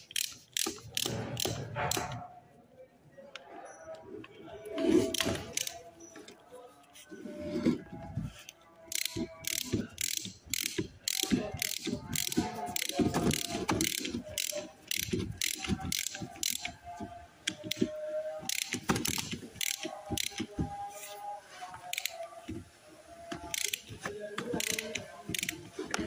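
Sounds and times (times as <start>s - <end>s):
hand ratchet clicking: 0.0s - 2.2s, 5.2s - 5.8s, 8.9s - 16.8s, 18.5s - 20.5s, 21.9s - 22.2s, 23.4s - 23.9s, 24.5s - 26.0s.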